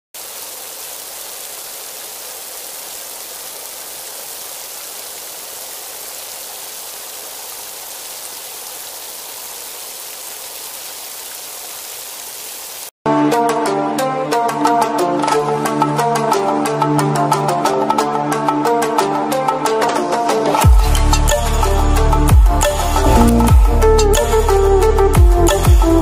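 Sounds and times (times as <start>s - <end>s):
food deep-frying in hot oil: 0.2s - 12.9s.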